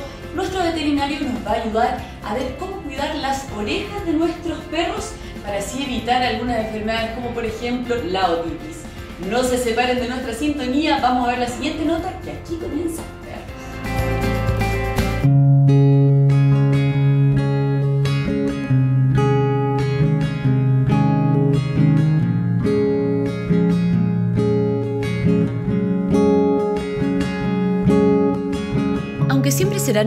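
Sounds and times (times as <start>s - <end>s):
acoustic guitar playing: 12.0s - 30.0s.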